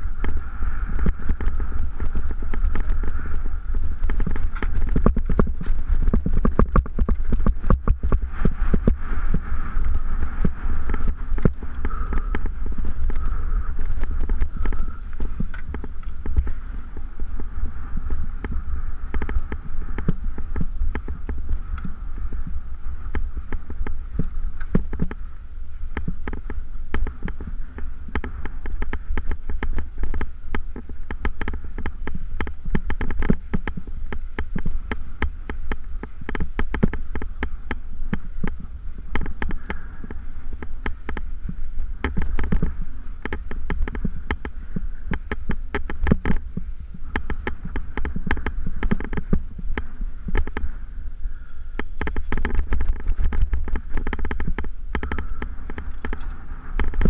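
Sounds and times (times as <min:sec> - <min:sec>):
low wind rumble: 0:00.0 - 0:57.0
bike knocks and clicks: 0:00.2 - 0:16.6, 0:51.5 - 0:57.0.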